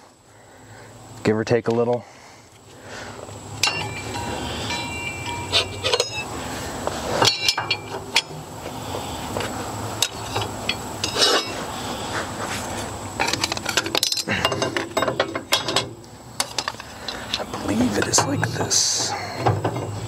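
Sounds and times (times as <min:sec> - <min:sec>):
metal parts clicking and clinking: 0:03.6 - 0:06.3, 0:07.2 - 0:08.4, 0:10.0 - 0:11.6, 0:13.2 - 0:20.0.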